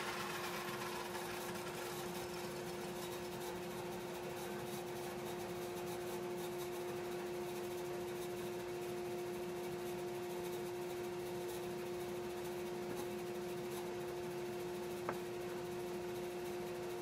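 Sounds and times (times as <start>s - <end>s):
workshop hum: 0.0s - 5.9s, 14.8s - 15.8s.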